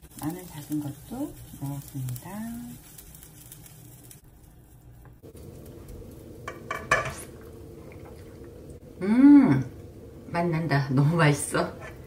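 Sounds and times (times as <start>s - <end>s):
utensils clinking on cookware: 6.5s - 7.3s.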